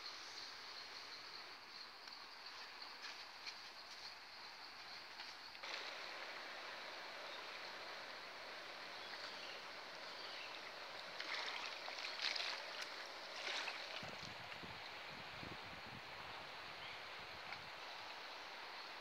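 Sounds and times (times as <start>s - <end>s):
river rushing: 5.6s - 15.1s.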